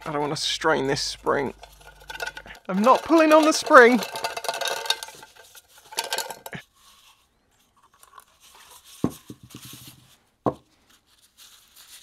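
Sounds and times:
metal scraping and clicking: 0:00.0 - 0:06.6.

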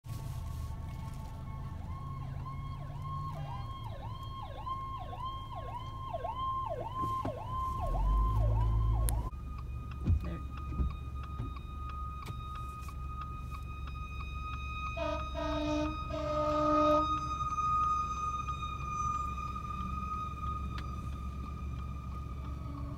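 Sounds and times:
fire truck siren steady tone: 0:00.0 - 0:22.9
low rumble: 0:00.1 - 0:22.9
ambulance siren yelping: 0:00.3 - 0:22.9
air horn blasts: 0:14.8 - 0:21.2.

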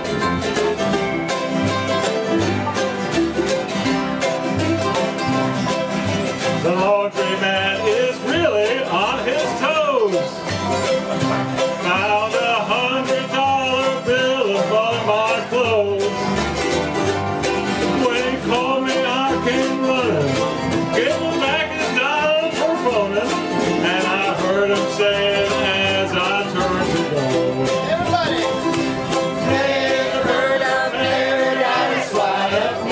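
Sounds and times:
string band playing country song: 0:00.0 - 0:32.9
voices singing along: 0:29.0 - 0:32.9.

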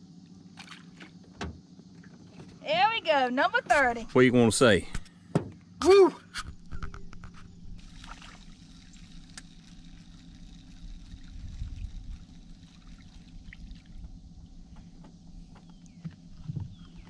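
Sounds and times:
steady low hum: 0:00.0 - 0:17.0
fish splashing at water surface: 0:07.8 - 0:14.0.

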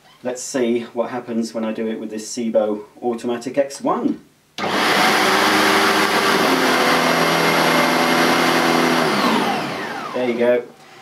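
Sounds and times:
upright vacuum cleaner running: 0:04.6 - 0:10.5.

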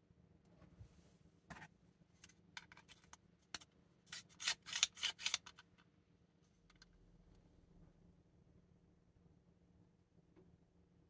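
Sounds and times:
plastic parts clicking and scraping: 0:01.5 - 0:05.9, 0:06.6 - 0:07.0.

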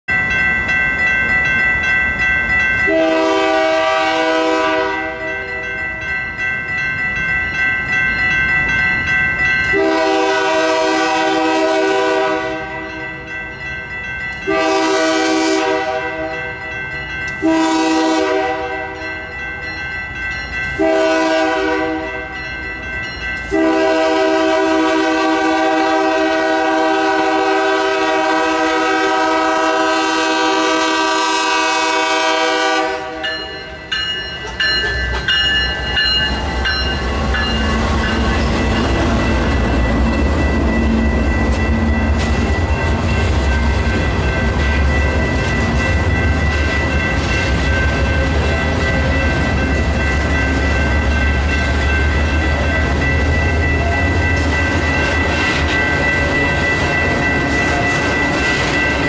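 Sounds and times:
crossing signal bell ringing: 0:00.1 - 0:59.0
train rumbling: 0:00.1 - 0:59.0
locomotive horn blasts: 0:02.9 - 0:05.4, 0:09.7 - 0:12.9, 0:14.4 - 0:16.4, 0:17.4 - 0:19.0, 0:20.8 - 0:22.2, 0:23.5 - 0:33.4.

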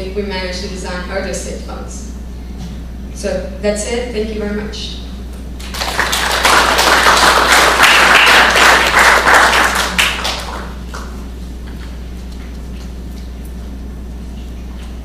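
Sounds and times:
audience applauding: 0:05.6 - 0:11.1.

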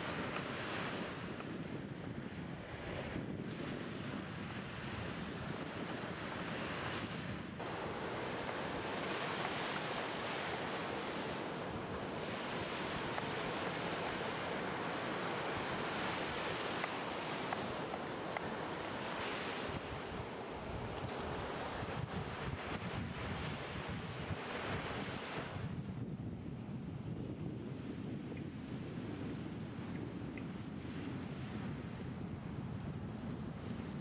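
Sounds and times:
sea waves on sandy shore: 0:00.0 - 0:25.8
wind buffeting microphone: 0:00.0 - 0:34.0.

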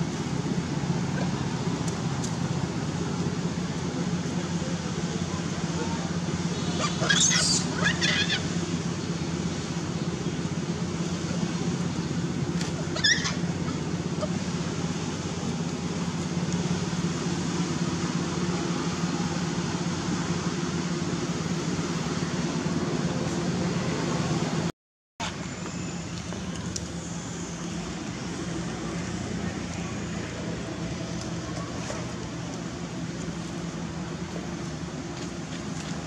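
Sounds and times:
low engine hum: 0:00.0 - 0:36.0
monkey high squeak: 0:06.8 - 0:08.4, 0:13.0 - 0:13.5
monkey shrill call: 0:06.8 - 0:08.5, 0:12.9 - 0:13.8.

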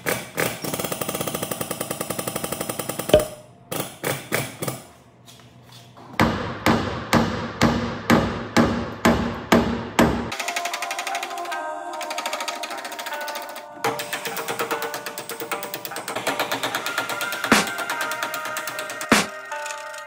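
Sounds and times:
hammer tapping sheet metal: 0:03.2 - 0:03.5
ringing hammer blows on metal: 0:03.2 - 0:03.5.

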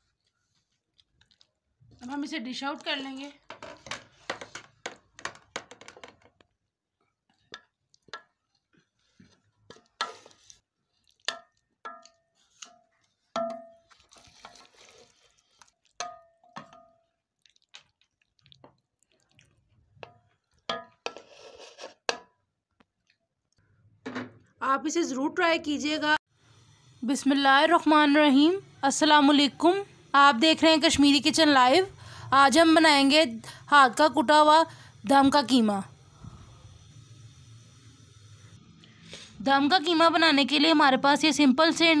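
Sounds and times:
spoon scraping meat in pot: 0:07.4 - 0:16.8, 0:20.0 - 0:22.3
spoon clinking on pot and plate: 0:16.0 - 0:17.0.

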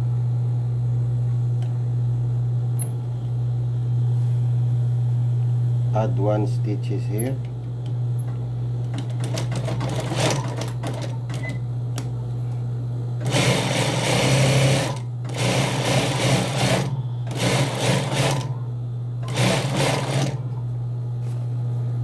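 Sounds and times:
steady low hum: 0:00.0 - 0:22.0
sewing machine stitching: 0:08.9 - 0:11.6, 0:13.2 - 0:18.6, 0:19.2 - 0:20.5.

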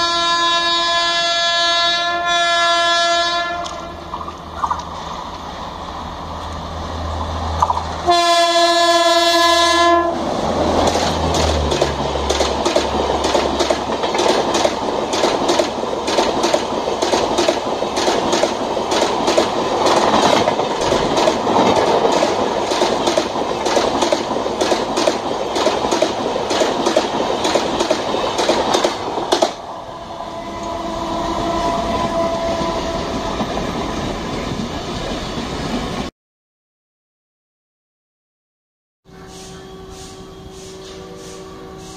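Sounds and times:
diesel locomotive horn: 0:00.0 - 0:04.2, 0:08.0 - 0:10.3, 0:29.7 - 0:34.4, 0:39.1 - 0:41.9
locomotive engine passing: 0:03.5 - 0:36.1
train wheels clickety-clack: 0:10.5 - 0:29.6.

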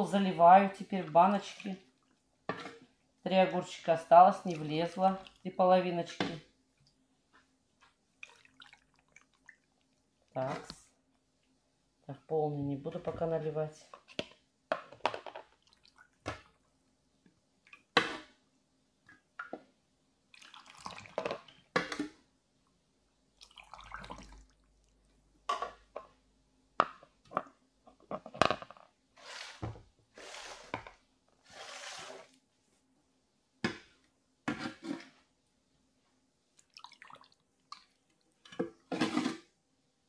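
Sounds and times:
liquid pouring through funnel: 0:08.2 - 0:10.8, 0:20.3 - 0:21.5, 0:23.4 - 0:24.7, 0:36.6 - 0:38.0.

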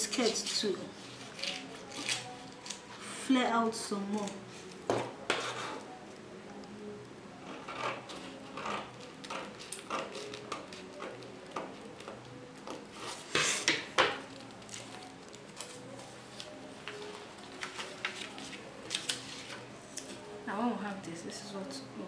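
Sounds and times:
scissors snipping paper: 0:01.4 - 0:02.8, 0:07.6 - 0:12.3.

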